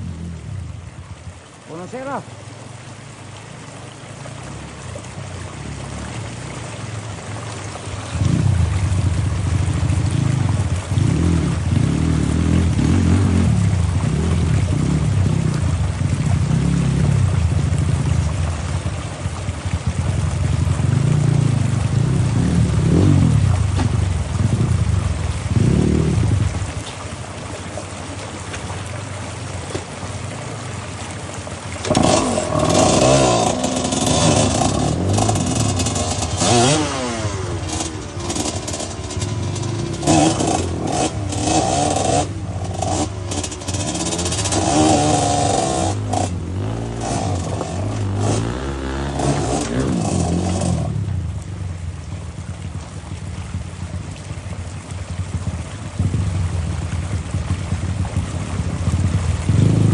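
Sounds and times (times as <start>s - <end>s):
dirt bike engine revving: 9.9s - 15.5s, 20.9s - 24.8s, 25.5s - 26.4s, 31.8s - 51.1s, 59.0s - 59.9s.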